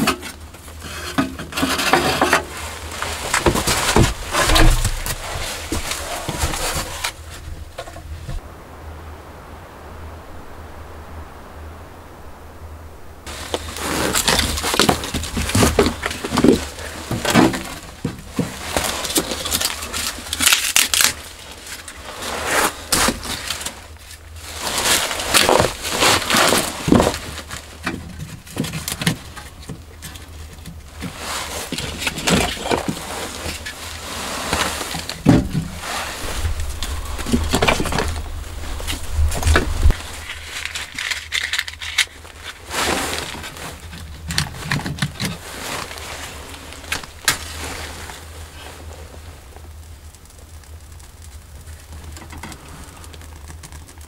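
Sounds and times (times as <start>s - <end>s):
firewood knocking and clattering: 0.0s - 8.4s, 13.3s - 21.2s, 34.8s - 42.6s
kindling rustling: 0.0s - 8.5s, 12.0s - 49.5s.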